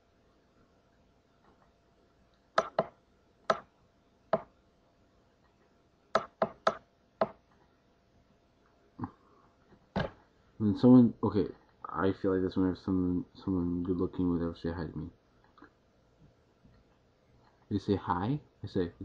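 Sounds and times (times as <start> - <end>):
sharp computer clicks: 2.6 - 3.7, 6.1 - 7.4.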